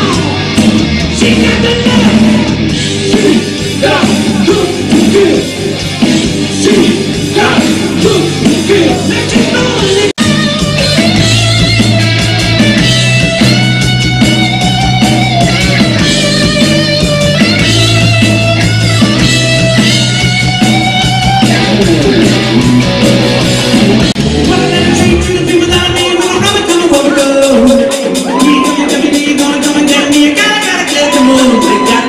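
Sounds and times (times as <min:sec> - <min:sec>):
bass guitar: 0:00.0 - 0:32.0
drums: 0:00.0 - 0:32.0
electric guitar: 0:00.0 - 0:32.0
man singing lead vocal: 0:01.1 - 0:05.7, 0:06.4 - 0:10.2, 0:24.2 - 0:32.0.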